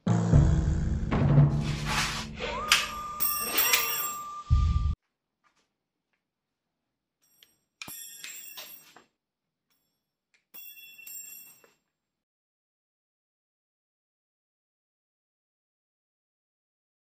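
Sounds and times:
steel blade ringing: 2.5s - 4.5s.

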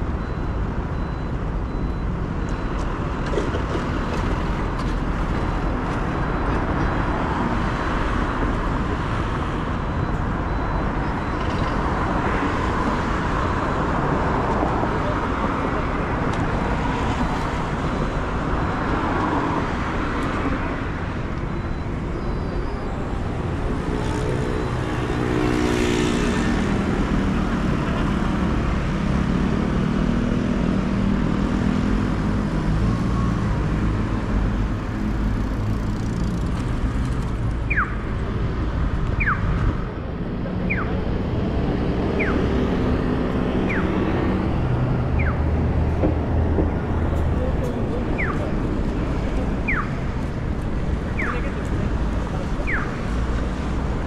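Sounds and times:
cars passing: 0.0s - 54.0s
traffic rumble: 0.0s - 54.0s
crossing signal chirps: 21.4s - 24.9s.

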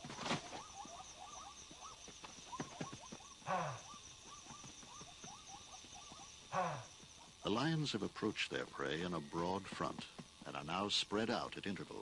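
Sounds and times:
high insect trill: 0.0s - 12.0s
chorus of chirping calls: 0.3s - 7.8s
deep animal call: 3.3s - 4.0s, 6.5s - 7.0s.

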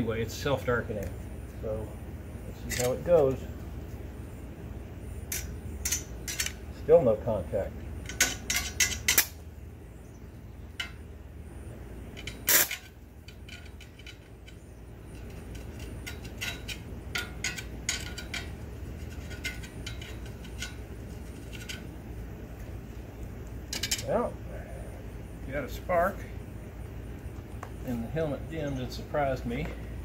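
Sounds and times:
welding rod scratching on steel: 12.2s - 22.0s.

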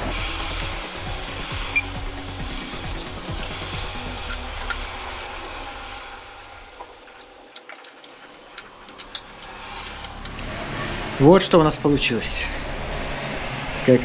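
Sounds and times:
hand tools clinking on metal: 6.4s - 10.6s.

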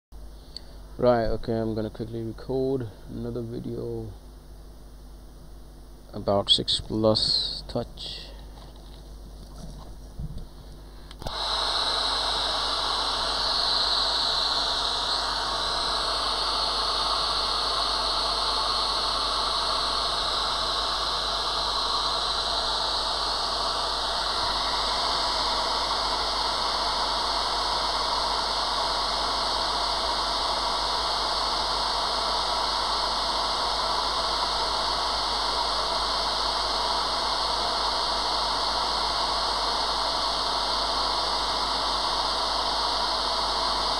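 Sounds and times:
hot air gun hissing: 10.6s - 43.9s.

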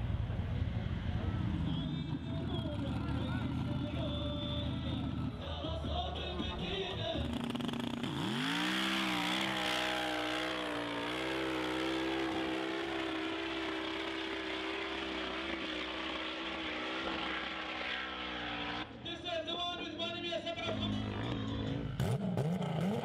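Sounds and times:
truck engine revving high: 7.2s - 19.0s, 20.7s - 23.0s.

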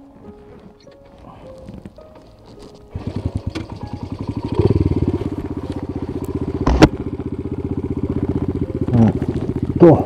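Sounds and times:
small engine idling: 2.9s - 10.0s.

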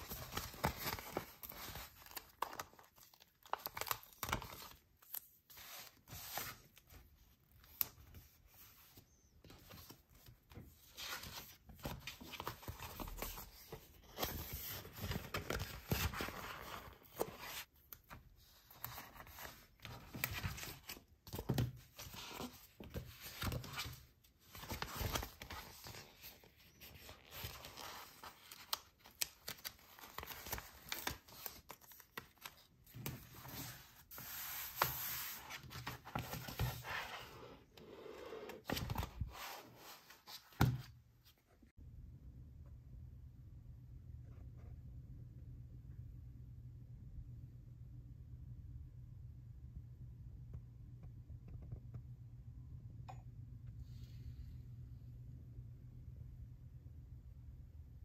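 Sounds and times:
paper rustling and crinkling: 0.0s - 37.4s, 38.6s - 40.9s.

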